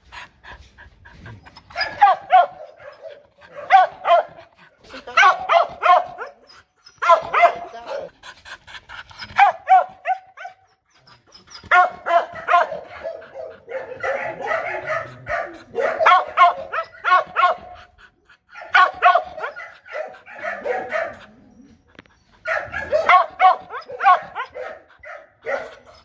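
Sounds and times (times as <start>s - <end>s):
dog barking: 1.7s - 4.4s, 5.2s - 6.4s, 7.0s - 8.1s, 9.4s - 10.6s, 11.7s - 17.8s, 18.5s - 21.3s, 22.5s - 25.8s.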